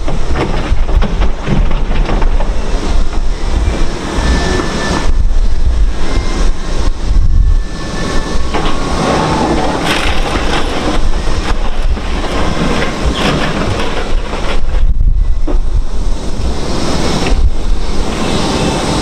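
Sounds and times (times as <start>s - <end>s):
debris clattering in steel skip: 0.0s - 3.9s, 8.2s - 17.0s
heavy machinery rumble: 0.0s - 19.0s.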